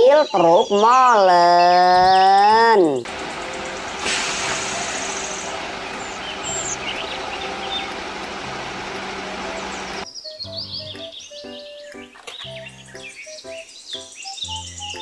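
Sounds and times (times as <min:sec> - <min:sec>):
outdoor machine noise: 0:03.0 - 0:10.0
truck engine running: 0:03.1 - 0:10.0
light background music: 0:07.6 - 0:15.0.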